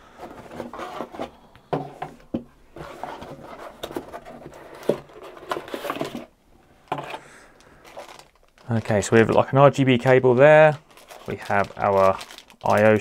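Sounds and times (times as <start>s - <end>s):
cardboard rustling and scraping: 0.0s - 6.3s.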